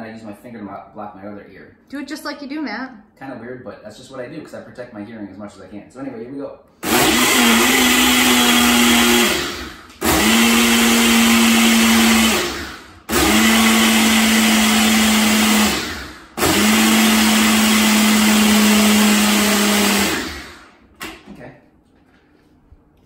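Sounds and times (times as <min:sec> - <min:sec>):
blender motor whining: 0:06.8 - 0:20.8.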